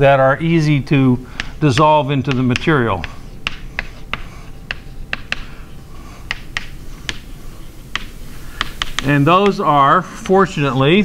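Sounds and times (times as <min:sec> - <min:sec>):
sharp taps or clicks: 0:01.4 - 0:05.5, 0:06.3 - 0:07.3.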